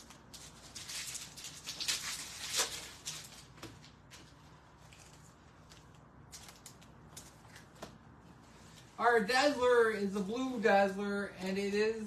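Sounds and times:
wrapper crinkling as torn open: 0.0 - 3.6
cards rustling: 0.0 - 8.0.

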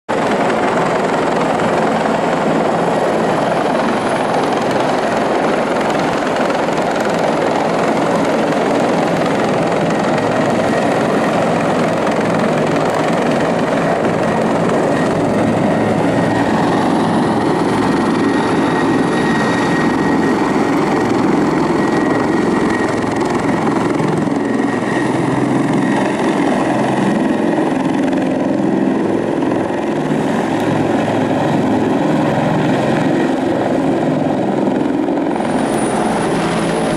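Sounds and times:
helicopter rotor and engine: 0.1 - 36.9
thin high whine: 35.3 - 36.9.

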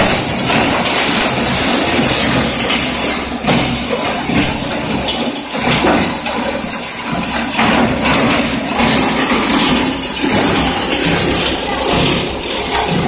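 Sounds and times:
bone crusher grinding: 0.0 - 13.0.

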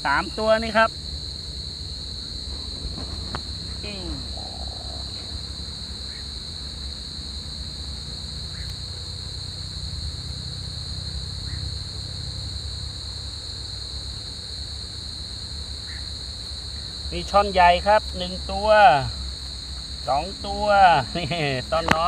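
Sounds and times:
low steady rumble: 0.0 - 13.3
crickets trilling: 0.0 - 22.0.

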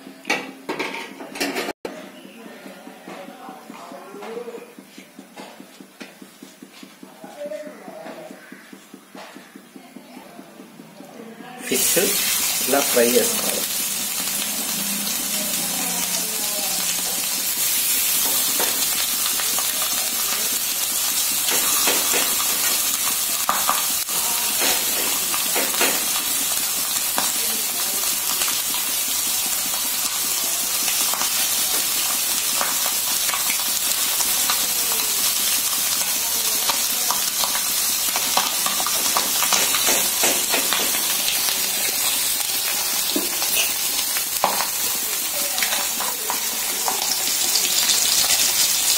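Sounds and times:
fish sizzling in hot oil: 11.6 - 48.9
oil pops and crackles: 29.5 - 36.1, 36.7 - 43.5.

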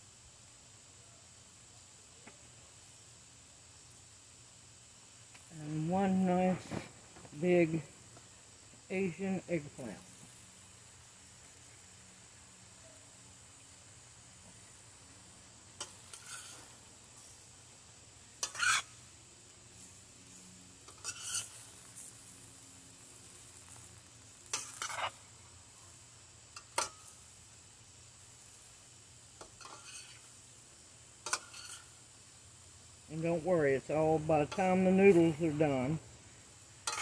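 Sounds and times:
faint steady hiss: 0.0 - 37.0
metal spoon scraping frying pan: 15.8 - 16.7, 18.4 - 19.0, 20.8 - 21.9, 24.5 - 25.2, 29.4 - 30.3, 31.2 - 32.0.

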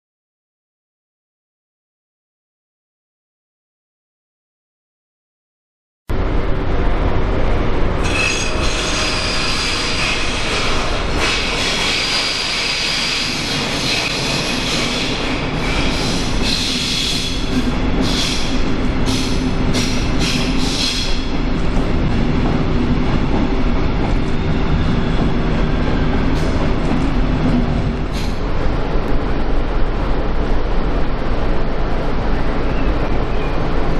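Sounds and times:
low hum and rumble: 6.1 - 9.3
train wheel squeal: 8.0 - 21.4, 32.4 - 33.9.

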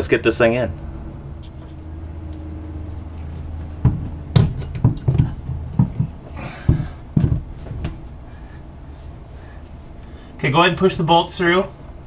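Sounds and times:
steady low hum: 0.0 - 12.0
knocks and bumps of pump: 3.5 - 8.0.

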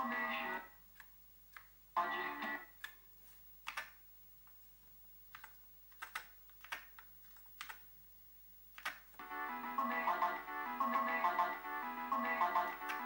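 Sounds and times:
keyboard key clicks: 3.6 - 4.0, 5.3 - 7.8, 8.8 - 9.2.

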